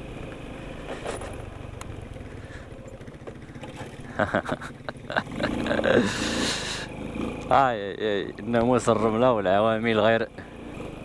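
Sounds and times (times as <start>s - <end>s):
scooter engine running: 0.0s - 11.0s
bike knocking and rattling: 0.8s - 5.2s.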